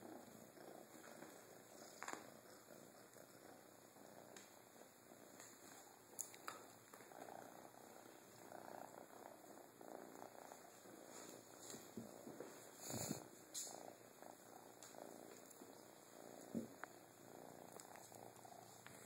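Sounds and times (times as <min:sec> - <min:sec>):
kitten purring: 0:00.0 - 0:19.0.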